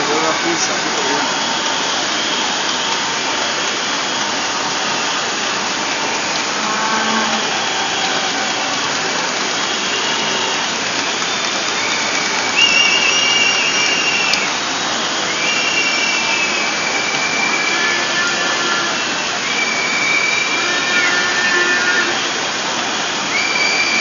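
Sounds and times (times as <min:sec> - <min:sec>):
high wavering whistle: 0:00.0 - 0:24.0
rain hiss: 0:00.0 - 0:24.0.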